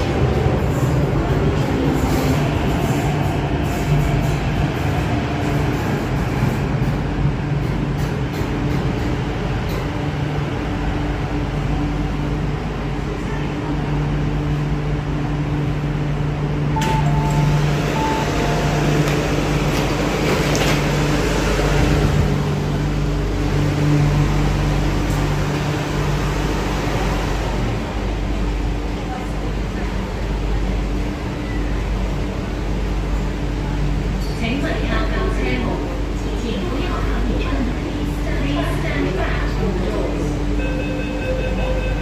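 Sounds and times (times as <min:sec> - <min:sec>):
train electrical hum: 0:00.0 - 0:42.0
train doors opening: 0:16.7 - 0:22.4
door warning beeps: 0:40.6 - 0:42.0.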